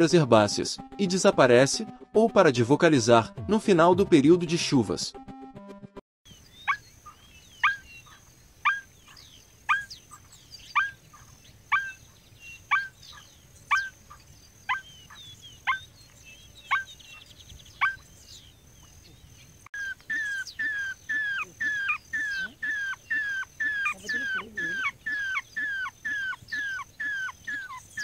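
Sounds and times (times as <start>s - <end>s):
other birds calling faintly: 6.3s - 28.0s
bird calling sharp downward notes: 6.5s - 8.9s, 19.8s - 28.0s.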